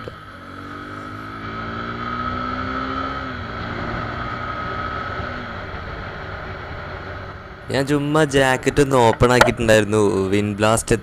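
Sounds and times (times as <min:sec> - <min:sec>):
motorcycle engine accelerating: 0:00.0 - 0:07.7.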